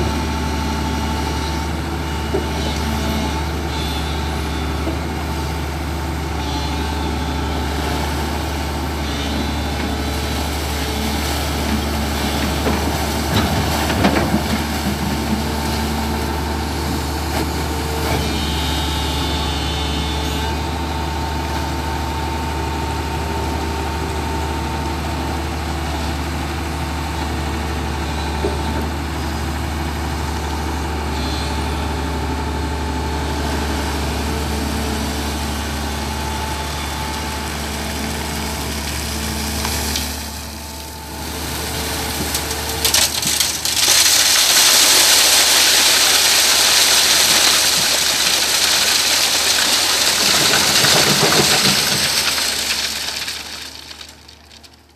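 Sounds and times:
excavator diesel engine running: 0.0 - 54.9
gravel tumbling onto steel mesh: 41.4 - 54.9.

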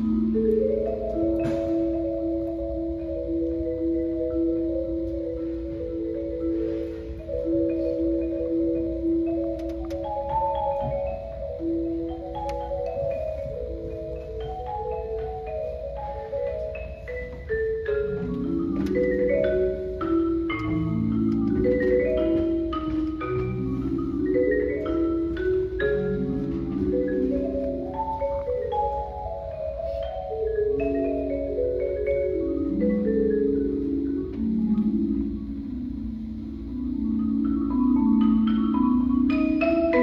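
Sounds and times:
marimba single struck notes: 0.0 - 5.4
marimba rolled chords: 0.0 - 40.0.

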